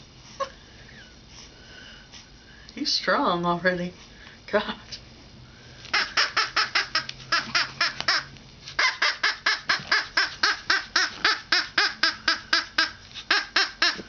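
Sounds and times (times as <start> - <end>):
squeaky dog toy squeaking: 5.9 - 14.0.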